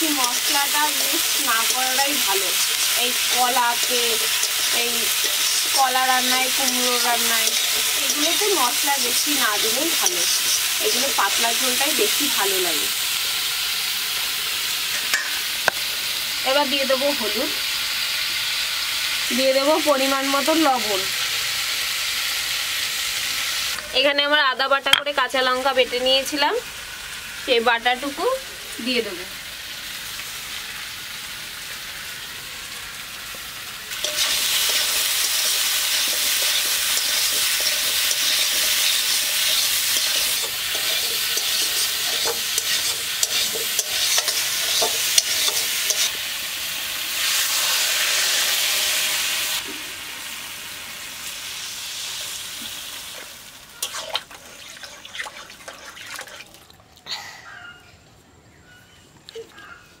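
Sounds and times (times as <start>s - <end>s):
spatula scraping pan: 0.0s - 11.4s, 34.0s - 46.2s, 53.8s - 56.5s
food sizzling in hot oil: 0.0s - 56.6s.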